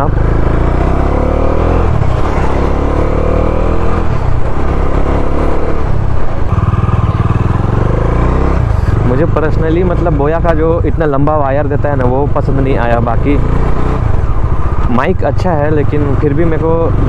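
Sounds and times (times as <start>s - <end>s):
motorcycle engine accelerating: 0.0s - 17.0s.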